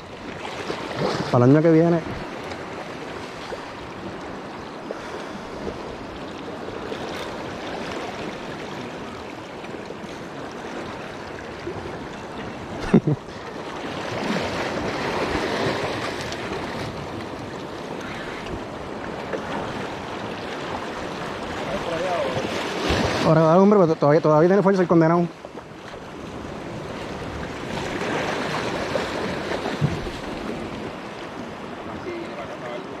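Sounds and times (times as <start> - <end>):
small waves washing over rocks: 13.5 - 33.0.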